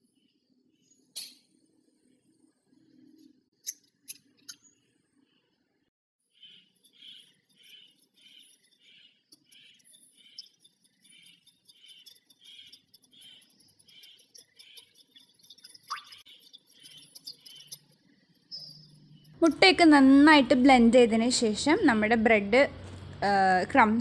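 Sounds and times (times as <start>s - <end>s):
whisk beating in glass bowl: 6.5s - 20.1s.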